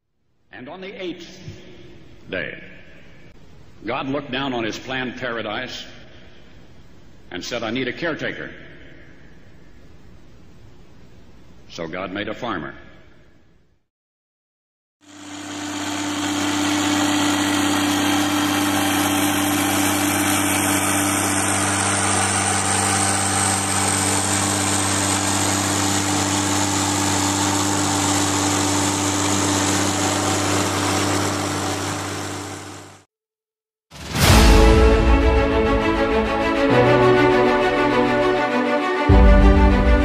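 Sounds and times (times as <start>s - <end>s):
machine drone and hum: 15.1s - 32.5s
rushing noise of chopped corn: 15.1s - 33.0s.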